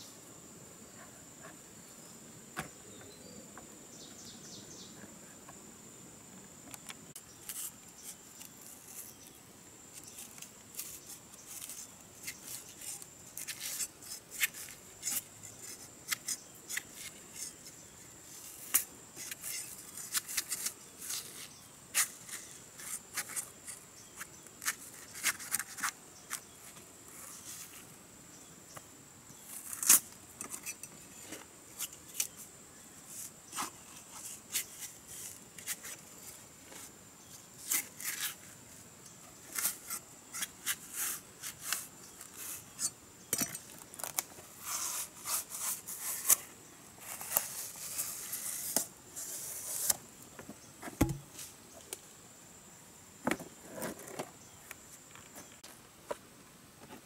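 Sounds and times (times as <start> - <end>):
dull thump: 2.6 - 3.1, 50.8 - 51.3
machete splitting bark off log: 51.0 - 51.3.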